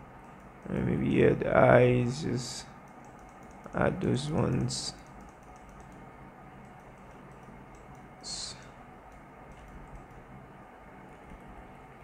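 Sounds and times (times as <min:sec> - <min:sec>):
low steady hiss: 0:00.0 - 0:12.0
mouse and keyboard clicks: 0:02.9 - 0:03.7, 0:04.4 - 0:06.0, 0:09.1 - 0:10.2.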